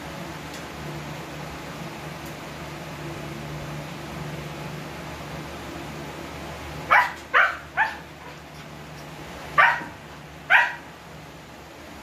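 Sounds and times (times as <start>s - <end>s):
puppy yelping in its sleep: 6.9s - 8.4s.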